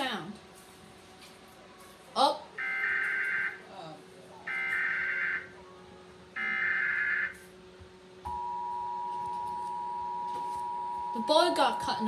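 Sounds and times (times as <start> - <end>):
two-tone attention signal: 8.3 - 12.0.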